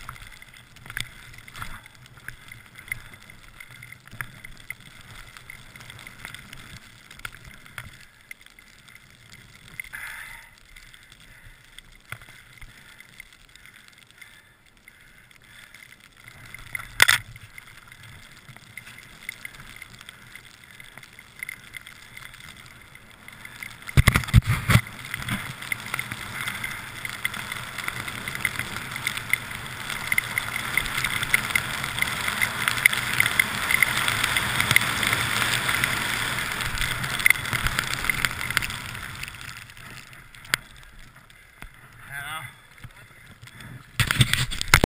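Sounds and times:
small knocks and clicks: 0:00.0 - 0:10.0, 0:15.7 - 0:34.9
skis sliding through snow: 0:00.0 - 0:44.9
sharp crack: 0:15.9 - 0:17.6, 0:23.4 - 0:43.0.

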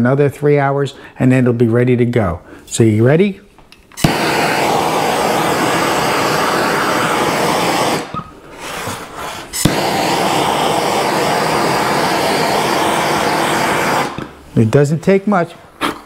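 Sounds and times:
torch ignition click: 0:03.9 - 0:08.3, 0:09.6 - 0:14.4
gas torch hissing: 0:04.0 - 0:14.6.

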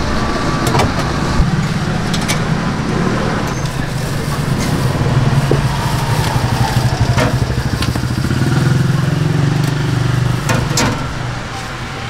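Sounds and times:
motor scooter engine running: 0:00.0 - 0:12.0.

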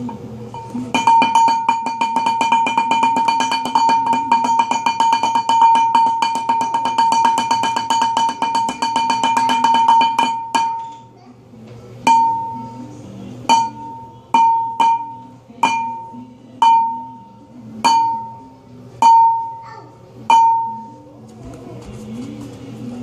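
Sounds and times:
fast ringing tapping percussion: 0:00.5 - 0:11.0, 0:12.1 - 0:12.6, 0:13.5 - 0:17.2, 0:17.8 - 0:19.6, 0:20.3 - 0:20.9.

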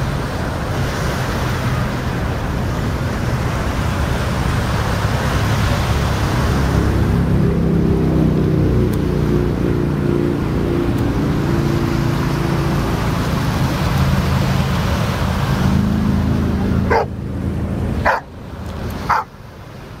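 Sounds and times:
loud steady low rumble: 0:01.5 - 0:19.4
dog barking: 0:16.9 - 0:17.1, 0:18.0 - 0:18.3, 0:19.1 - 0:19.3.

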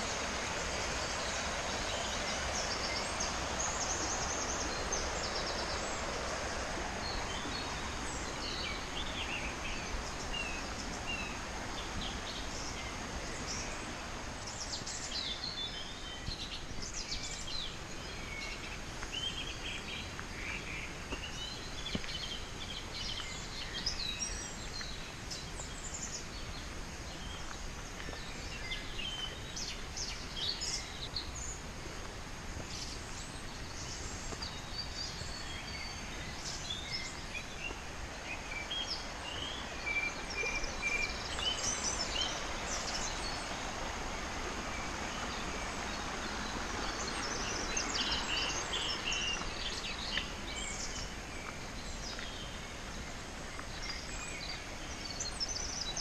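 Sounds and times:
stream rushing: 0:00.0 - 0:56.0
birds chirping and trilling: 0:32.6 - 0:56.0.

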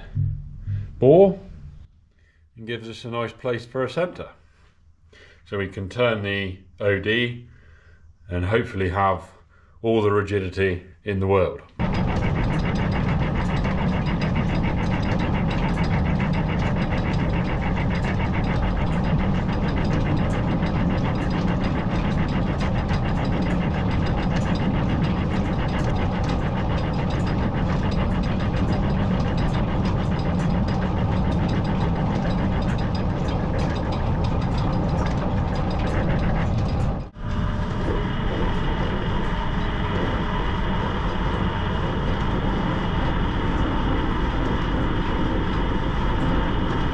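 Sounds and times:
fast dense ticking: 0:11.8 - 0:46.9
metal lathe running: 0:11.8 - 0:46.9.

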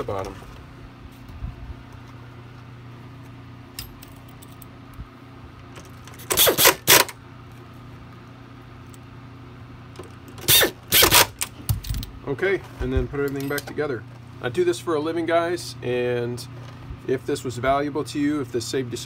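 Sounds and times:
pneumatic screwdriver whirring: 0:06.2 - 0:07.2, 0:10.4 - 0:11.5.

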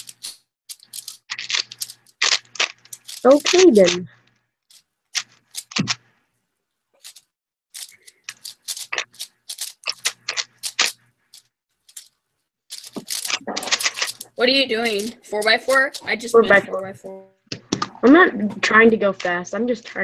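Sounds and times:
puzzle cube clicking: 0:00.0 - 0:04.1, 0:04.7 - 0:06.0, 0:07.8 - 0:11.0, 0:12.7 - 0:16.2.

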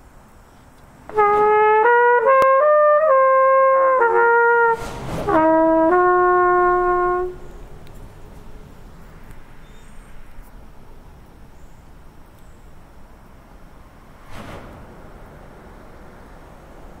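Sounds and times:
trumpet playing sustained notes: 0:01.1 - 0:07.7.

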